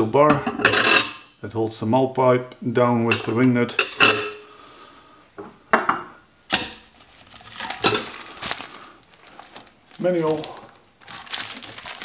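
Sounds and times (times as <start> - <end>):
plastic sleeve rustling: 6.8 - 12.0.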